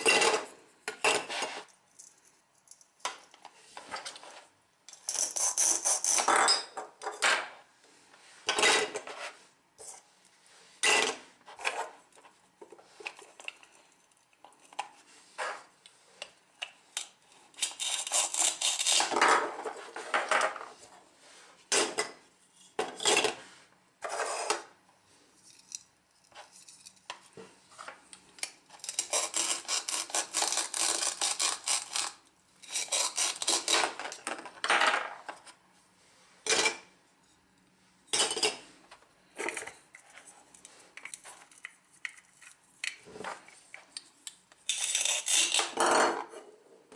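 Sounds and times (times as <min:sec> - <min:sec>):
velcro tearing: 0:32.8 - 0:33.8.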